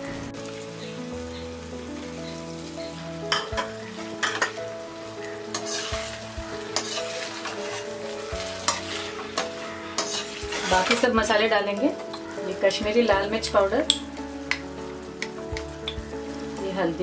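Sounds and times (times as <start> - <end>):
food sizzling in a pan: 0.0 - 17.0
metal spatula scraping a pan: 5.5 - 11.2.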